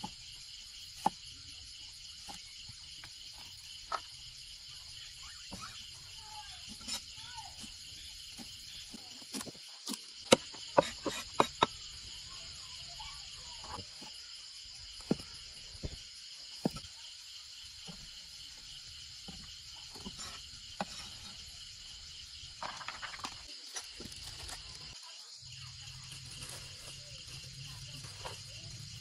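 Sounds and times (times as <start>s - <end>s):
insects chirring: 0.0s - 29.0s
cleaver chopping on wooden block: 9.3s - 11.8s.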